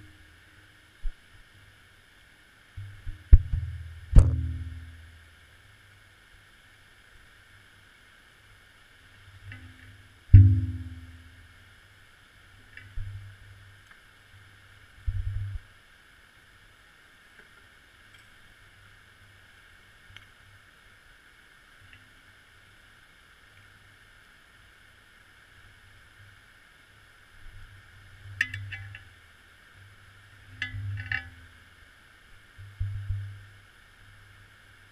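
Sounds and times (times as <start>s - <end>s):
muffled underwater hiss: 0.0s - 34.9s
dull low thumps: 3.3s - 4.8s, 10.3s - 11.1s.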